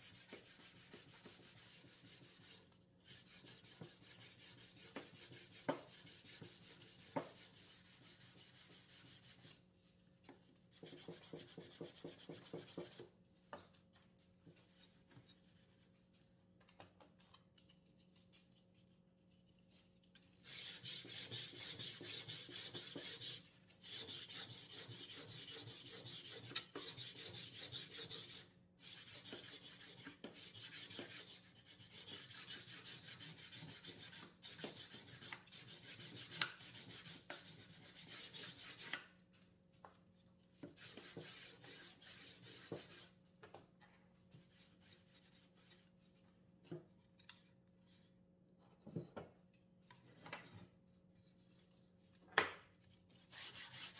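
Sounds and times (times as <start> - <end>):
sandpaper on wood: 0.0 - 9.5, 10.8 - 13.0, 20.5 - 39.0, 40.8 - 43.1, 53.3 - 53.9.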